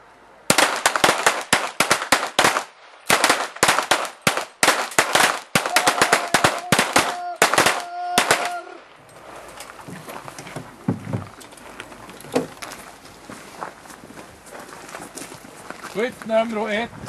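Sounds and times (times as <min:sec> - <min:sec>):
pistol shots: 0:00.5 - 0:08.6.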